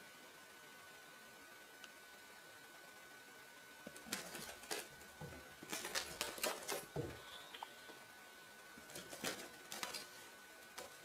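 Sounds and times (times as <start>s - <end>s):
cat claws scratching fabric: 3.9s - 7.0s.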